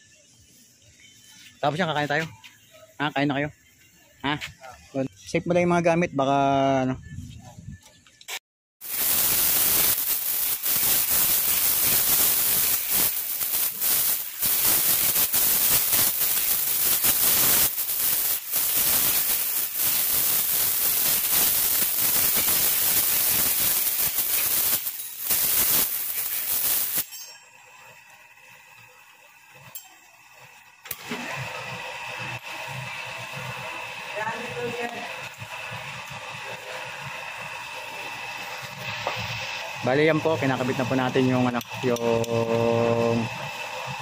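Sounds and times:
loud steady hiss: 8.8s - 44.0s.

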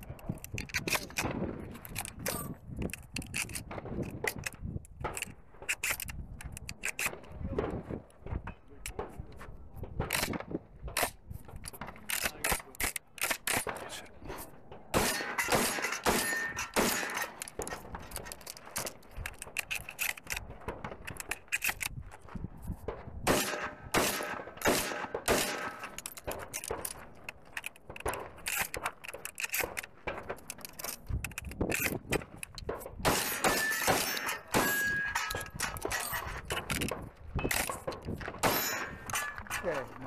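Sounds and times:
shotgun shots: 14.9s - 18.0s, 23.2s - 26.8s, 33.0s - 36.2s, 37.4s - 39.8s
steel plates ringing: 15.0s - 17.4s, 33.1s - 36.2s, 38.4s - 39.6s.

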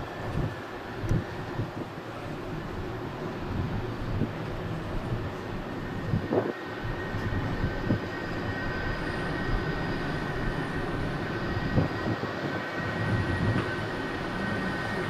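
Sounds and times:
train rolling rumble: 0.0s - 15.0s
thin high whine: 4.7s - 15.0s.

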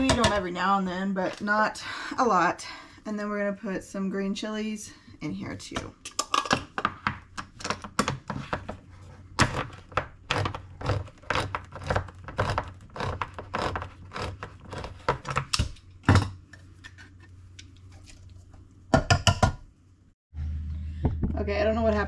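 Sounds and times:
low steady hum: 13.9s - 22.0s.

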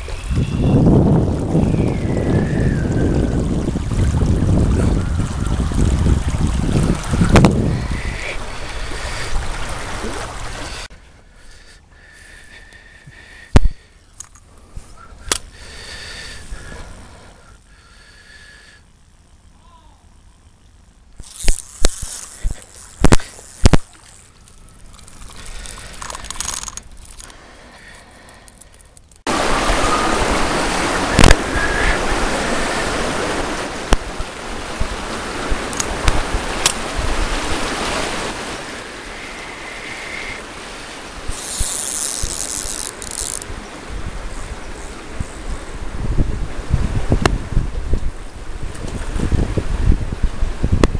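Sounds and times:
wind rushing on microphone: 0.0s - 10.9s, 29.3s - 40.4s, 41.0s - 50.9s
sharp clicks: 15.2s - 15.6s.

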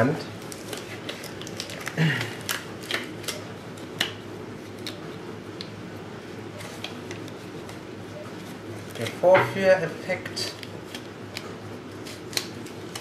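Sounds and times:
plastic glove crinkling: 0.4s - 4.0s.

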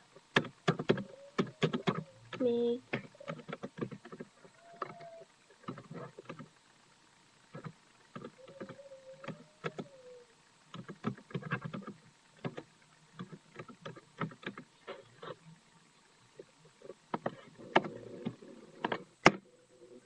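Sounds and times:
faint wavering tone: 8.4s - 10.5s.

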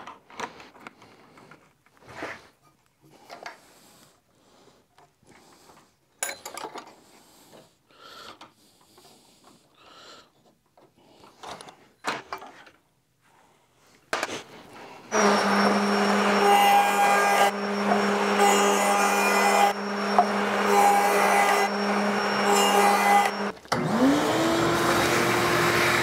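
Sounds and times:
router motor whine: 15.1s - 26.0s.

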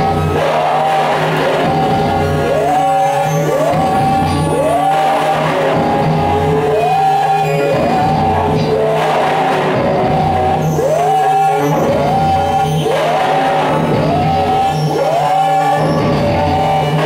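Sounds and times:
pulsing low bass: 3.6s - 7.0s, 7.7s - 10.9s.

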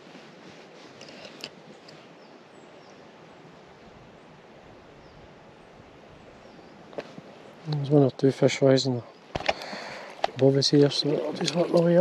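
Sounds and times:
flowing river water: 0.0s - 12.0s.

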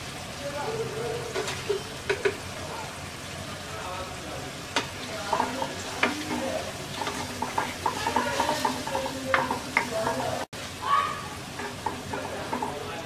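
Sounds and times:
fish frying and sizzling: 0.0s - 13.0s
spatula knocking pan: 1.3s - 2.5s, 4.7s - 10.5s, 11.4s - 13.0s
wooden spatula scraping a pan: 4.8s - 10.5s, 11.5s - 13.0s.

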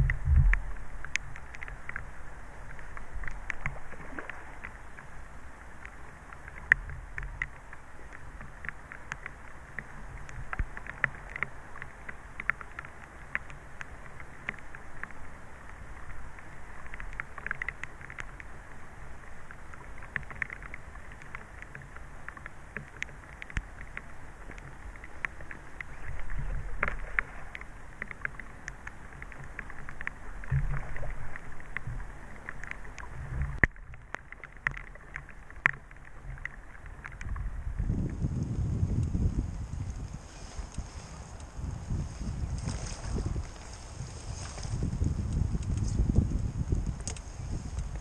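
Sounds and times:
wind buffeting microphone: 0.0s - 0.8s, 37.2s - 48.0s
rain pattering: 0.0s - 48.0s.

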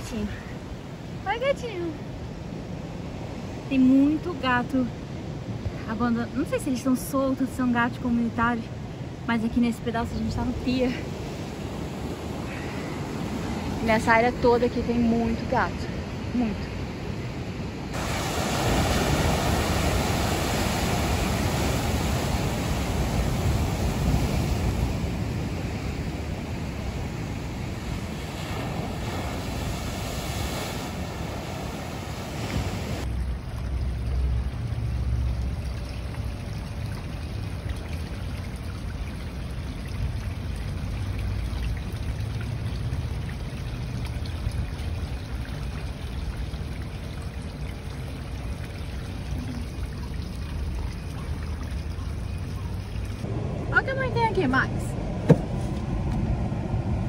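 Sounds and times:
running water: 2.9s - 55.4s
ocean waves breaking on rocks: 17.9s - 33.1s.

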